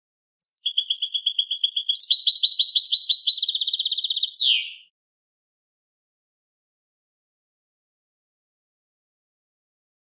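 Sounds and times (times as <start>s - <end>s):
finch singing trilled notes: 0.4s - 4.9s.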